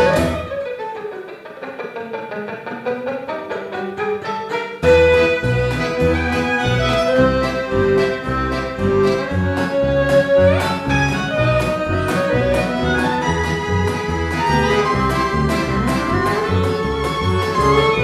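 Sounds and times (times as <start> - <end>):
violins playing: 0.0 - 0.8, 4.4 - 18.0
accordion: 0.0 - 0.9, 3.6 - 18.0
double bass and guitar rhythm: 0.0 - 18.0.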